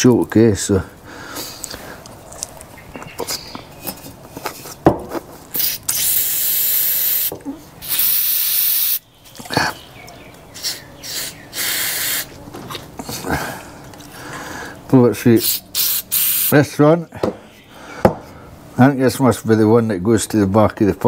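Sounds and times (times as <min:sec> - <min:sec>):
compressed air hissing bursts: 0:05.5 - 0:09.0, 0:10.6 - 0:12.3, 0:15.4 - 0:16.6.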